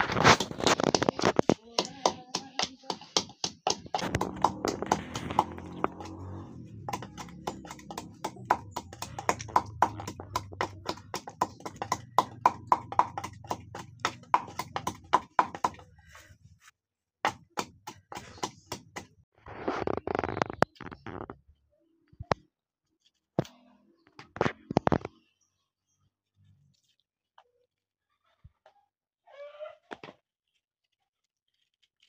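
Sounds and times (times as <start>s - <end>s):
wooden pestle pounding in mortar: 0.0s - 15.9s, 17.3s - 19.1s.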